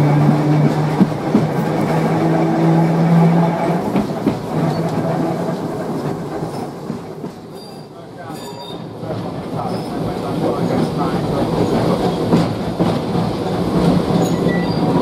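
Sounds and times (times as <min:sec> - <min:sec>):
knocks from rail joints: 0:00.0 - 0:02.3, 0:03.6 - 0:07.5
wheels rumbling on rails: 0:00.0 - 0:15.0.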